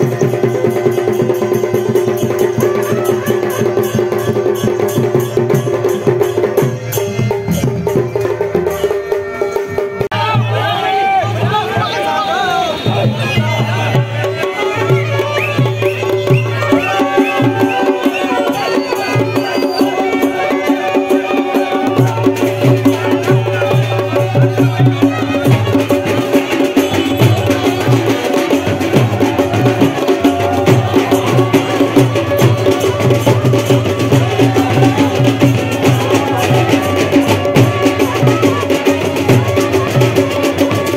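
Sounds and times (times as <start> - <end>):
drums beating a steady rhythm: 0.0 - 40.9.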